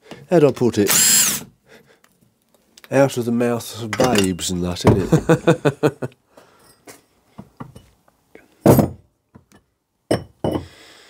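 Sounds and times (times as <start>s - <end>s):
metal tools clicking and clunking: 3.9s - 4.5s.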